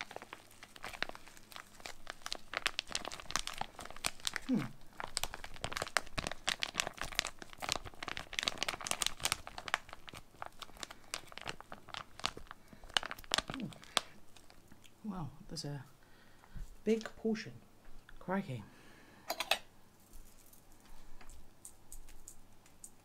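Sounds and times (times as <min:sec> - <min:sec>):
plastic packaging crinkling and tearing: 0:00.0 - 0:14.9.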